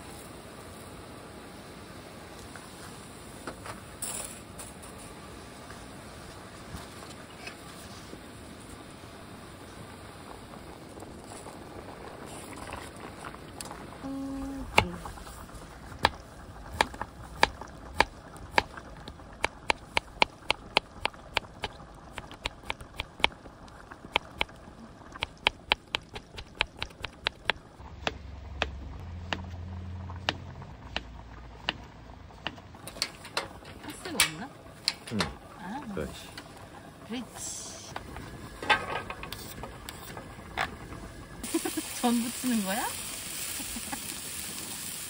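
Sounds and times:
knife chopping on wooden board: 0:19.4 - 0:23.4, 0:25.2 - 0:29.5.

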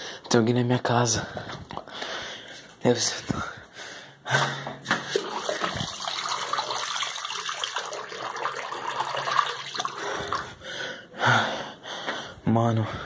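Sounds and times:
water running from tap into sink: 0:05.2 - 0:10.0.

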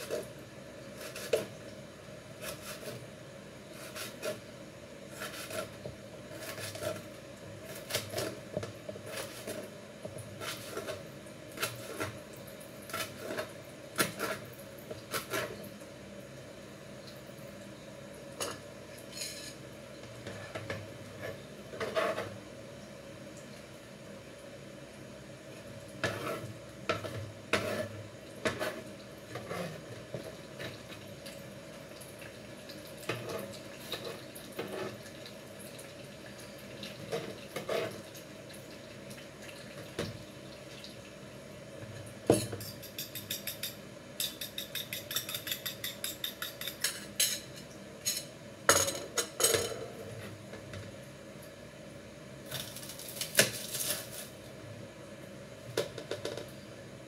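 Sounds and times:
knife cutting onion: 0:01.0 - 0:01.5, 0:02.4 - 0:03.0, 0:03.7 - 0:04.4, 0:05.1 - 0:08.4, 0:09.0 - 0:09.7, 0:10.4 - 0:12.2, 0:12.9 - 0:14.5, 0:15.1 - 0:15.6.

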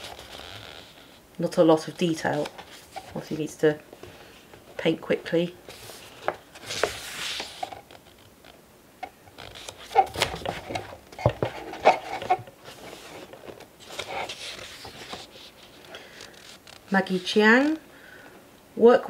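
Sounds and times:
magazine pages turning: 0:00.0 - 0:01.2, 0:01.8 - 0:04.7, 0:05.6 - 0:08.3, 0:09.4 - 0:17.3.

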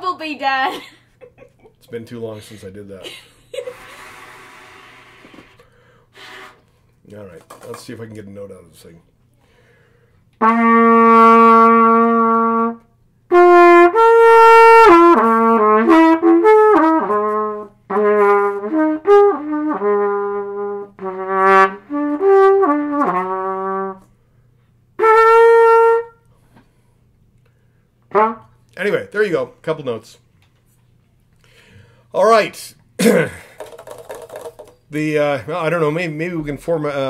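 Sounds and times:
solo trumpet: 0:06.2 - 0:06.8, 0:10.4 - 0:24.2, 0:25.0 - 0:26.3, 0:28.1 - 0:28.6.

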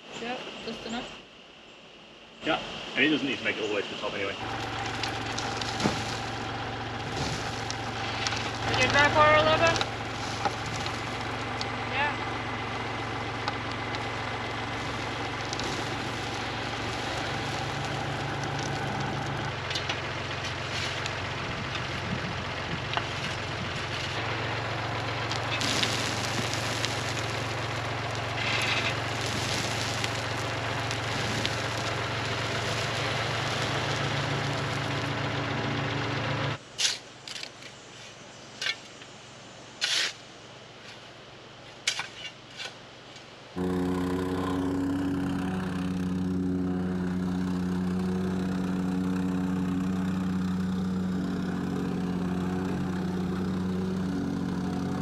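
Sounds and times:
dirt spilling: 0:04.4 - 0:21.4, 0:22.9 - 0:35.3
tractor engine running: 0:04.4 - 0:36.7, 0:43.6 - 0:55.0
shovel scraping and clunking: 0:36.8 - 0:37.5, 0:39.8 - 0:40.2.

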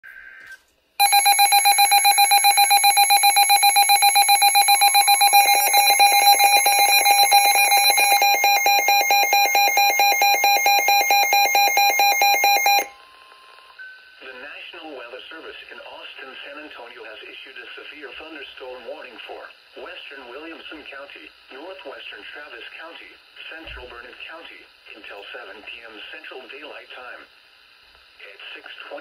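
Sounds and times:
rapid electronic beeping: 0:01.0 - 0:12.9
second beeping pattern: 0:01.0 - 0:13.0.

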